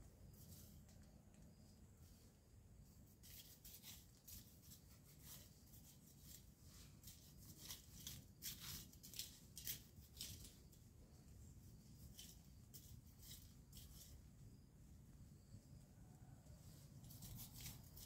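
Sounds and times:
weeds being pulled and torn: 0:03.2 - 0:10.8, 0:17.0 - 0:18.0.

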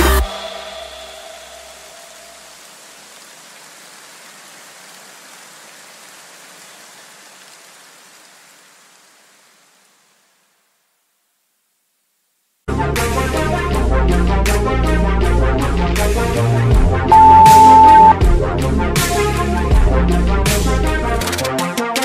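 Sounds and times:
rain-like hiss: 0:00.1 - 0:12.7
low bass note: 0:17.1 - 0:18.1.

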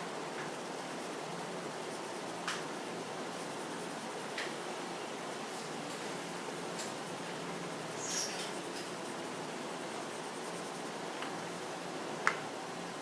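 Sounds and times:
pencil scratching on paper: 0:03.3 - 0:04.4, 0:07.0 - 0:09.3, 0:09.9 - 0:11.0.

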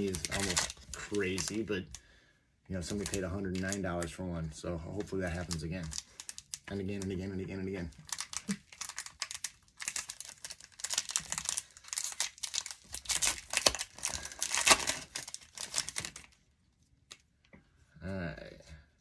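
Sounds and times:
foil wrapper crinkling and tearing: 0:00.0 - 0:02.0, 0:02.8 - 0:04.1, 0:05.0 - 0:16.5.

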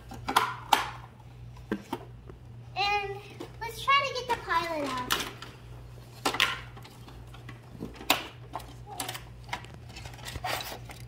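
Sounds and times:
plastic toy pieces clattering: 0:04.6 - 0:05.5, 0:06.2 - 0:11.0.

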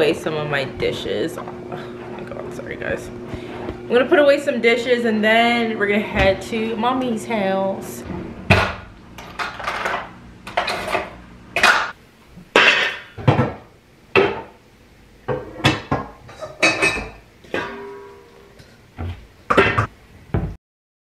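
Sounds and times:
dishes clinking and clattering: 0:08.5 - 0:13.6, 0:15.3 - 0:18.8.

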